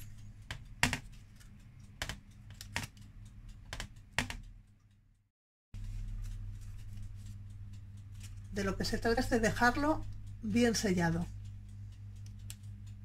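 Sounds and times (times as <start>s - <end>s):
steady low hum: 0.0s - 5.2s, 5.8s - 13.0s
fingers tapping pastry on tray: 0.4s - 1.2s, 1.8s - 4.6s.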